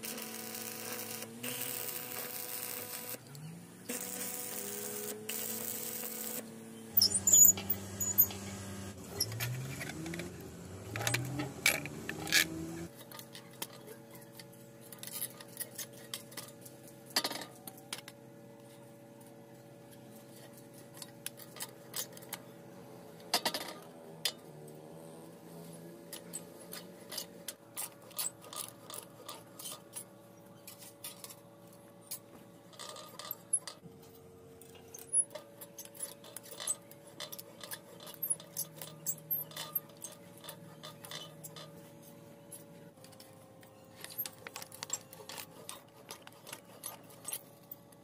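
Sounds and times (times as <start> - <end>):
arc welding crackling: 0.0 - 3.3, 3.9 - 13.3
lever shear cutting sheet metal: 3.9 - 13.8, 34.7 - 41.8.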